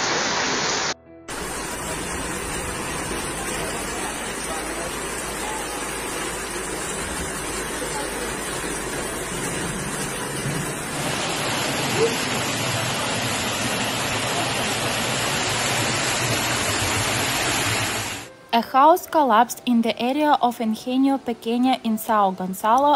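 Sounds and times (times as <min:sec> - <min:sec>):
floodwater rushing: 0:00.0 - 0:18.3
heavy rain falling: 0:00.0 - 0:18.3.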